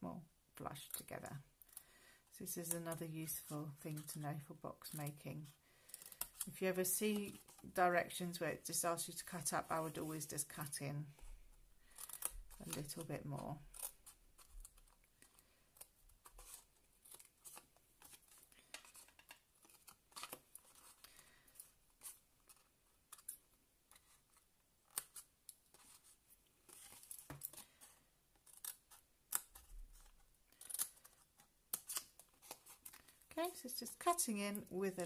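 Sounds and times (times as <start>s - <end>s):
card rustling: 9.1s - 35.0s.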